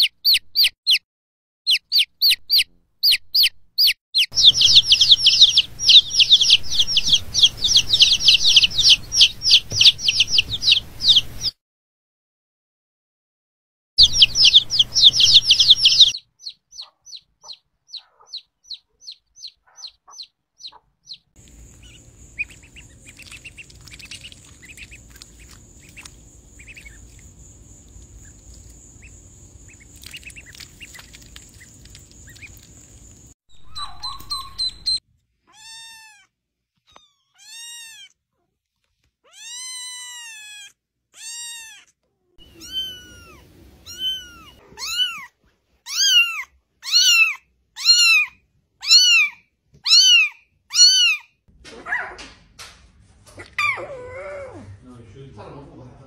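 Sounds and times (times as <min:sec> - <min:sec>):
ducklings peeping: 0:00.0 - 0:01.0, 0:01.7 - 0:11.6, 0:14.0 - 0:35.0, 0:42.4 - 0:45.2, 0:45.9 - 0:49.3
chicks peeping: 0:01.7 - 0:11.6, 0:14.0 - 0:35.0
kitten meowing: 0:04.2 - 0:11.5, 0:33.7 - 0:36.3, 0:36.9 - 0:38.1, 0:39.2 - 0:45.3, 0:45.9 - 0:51.3.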